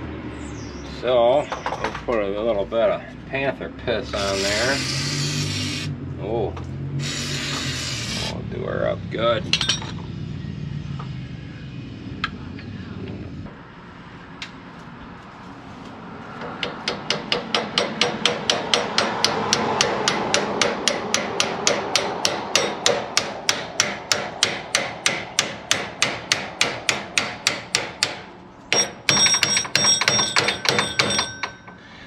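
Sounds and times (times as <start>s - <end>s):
hammer tapping on metal: 16.4s - 31.8s
sharp ringing metal blows: 28.7s - 31.8s.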